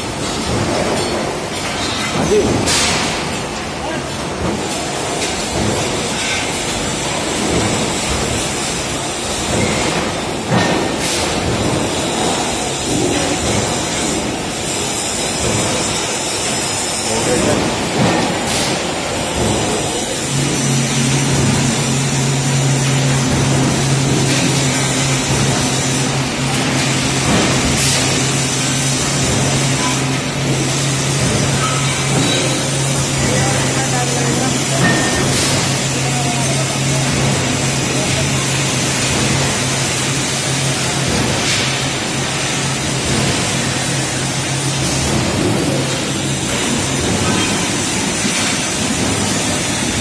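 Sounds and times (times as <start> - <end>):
machine noise: 0.0 - 50.0
metal lathe running: 11.8 - 50.0.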